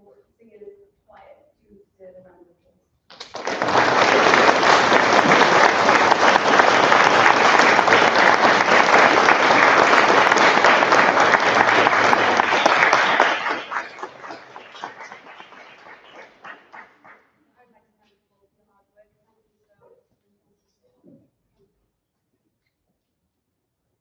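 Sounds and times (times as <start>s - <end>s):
audience applauding: 3.1s - 17.2s.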